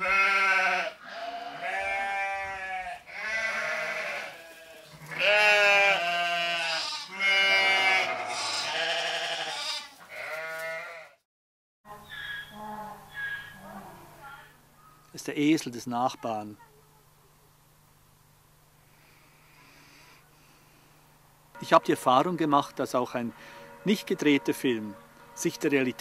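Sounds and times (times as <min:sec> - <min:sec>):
donkey braying: 0:12.0 - 0:15.0.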